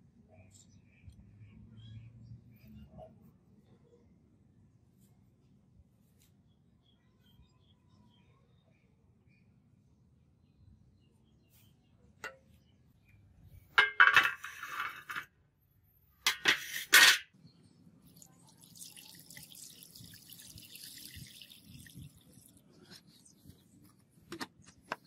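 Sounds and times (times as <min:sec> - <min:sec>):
liquid pouring into tray: 0:18.1 - 0:22.6.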